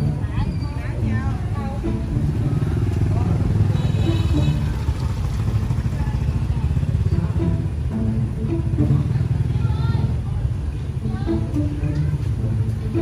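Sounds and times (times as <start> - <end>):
light background music: 0.0 - 3.6, 6.2 - 13.0
scooter engine running: 1.4 - 13.0.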